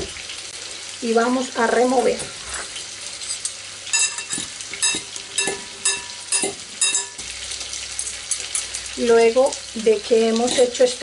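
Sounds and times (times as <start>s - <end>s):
utensils clinking in ceramic bowl: 3.2s - 7.3s, 7.9s - 8.8s, 10.4s - 11.0s.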